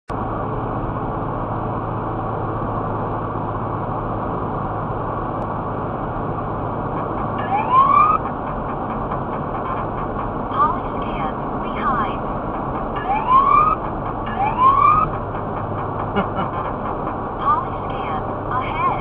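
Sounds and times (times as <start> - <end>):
car road and engine noise: 0.1 - 19.0
rising electronic alert tone: 7.4 - 8.2, 13.0 - 15.1.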